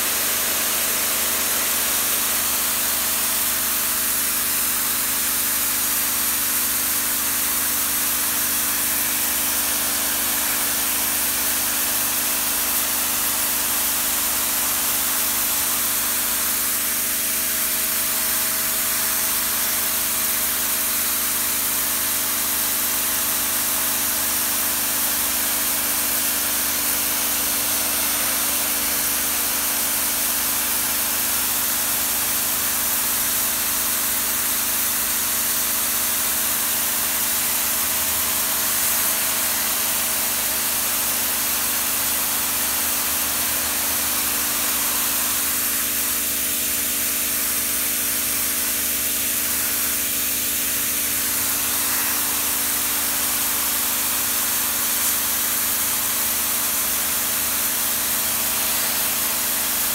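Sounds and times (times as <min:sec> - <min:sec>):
water jet hissing: 0:00.0 - 0:03.7
pressure washer motor humming: 0:00.0 - 0:59.9.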